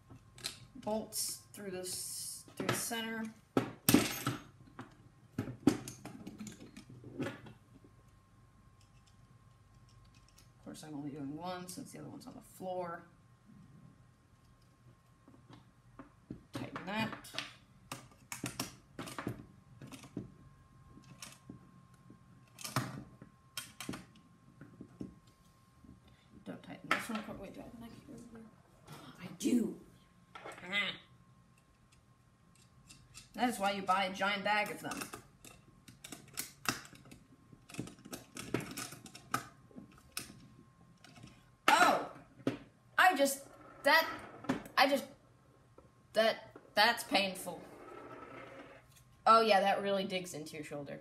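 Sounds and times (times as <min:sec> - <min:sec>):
plastic parts clicking and tapping: 0:34.6 - 0:41.4.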